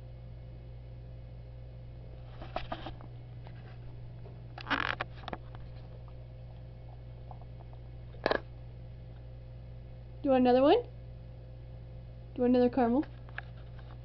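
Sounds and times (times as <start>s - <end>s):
low hum: 0.0s - 14.0s
dog chewing: 5.0s - 8.5s.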